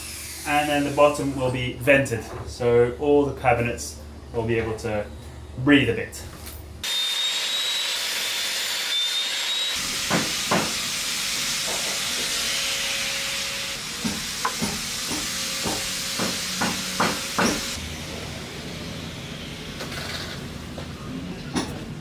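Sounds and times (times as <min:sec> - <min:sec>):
table saw cutting wood: 0:06.8 - 0:20.5.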